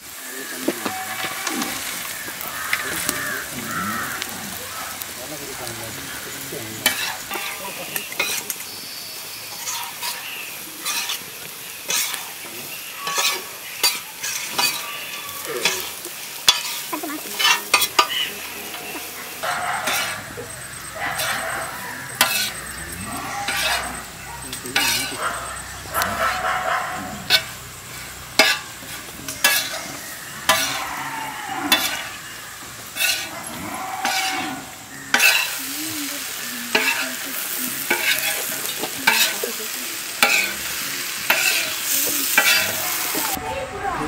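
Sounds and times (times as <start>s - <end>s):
food sizzling in oil: 0.0s - 43.6s
metal spatula scraping iron pan: 6.8s - 8.6s, 9.5s - 12.2s, 12.9s - 24.1s, 24.8s - 25.2s, 27.2s - 32.2s, 32.8s - 35.6s, 36.7s - 39.5s, 40.2s - 43.4s.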